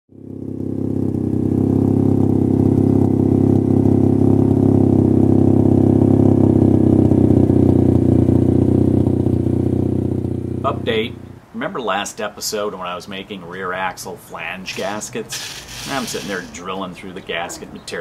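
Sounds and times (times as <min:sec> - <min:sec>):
car engine running: 0:00.1 - 0:11.6, 0:14.7 - 0:16.6.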